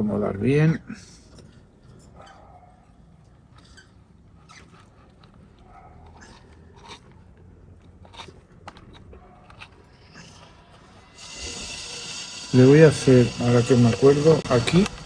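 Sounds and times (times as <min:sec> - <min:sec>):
gritty soil crunching and clicking: 0:04.6 - 0:10.5.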